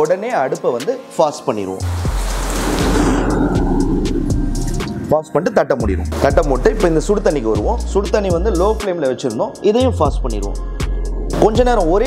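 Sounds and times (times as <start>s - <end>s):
gas hissing: 1.8s - 5.2s
gas flame rumbling: 1.9s - 5.2s, 10.8s - 12.0s.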